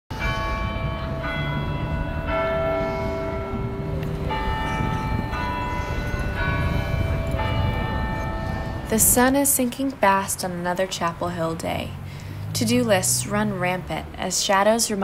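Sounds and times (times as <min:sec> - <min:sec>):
tower bells ringing a tune: 0:00.1 - 0:11.1.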